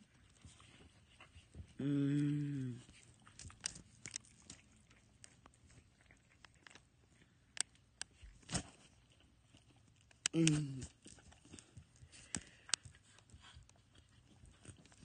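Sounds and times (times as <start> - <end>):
person humming: 1.8 - 2.9, 10.3 - 10.9.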